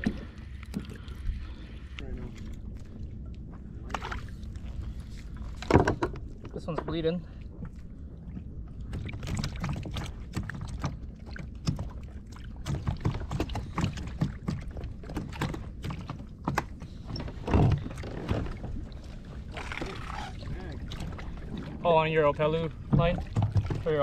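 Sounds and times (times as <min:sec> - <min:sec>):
low rumble of water and wind: 0:00.0 - 0:24.0
clicks and knocks on plastic kayak: 0:05.6 - 0:06.2, 0:12.6 - 0:18.5, 0:22.8 - 0:24.0.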